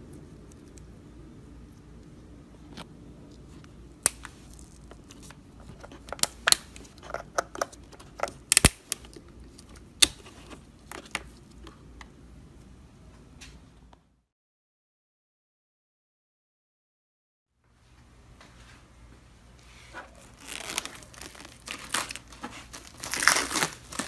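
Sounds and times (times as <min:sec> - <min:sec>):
faint low hum: 0:00.0 - 0:14.3.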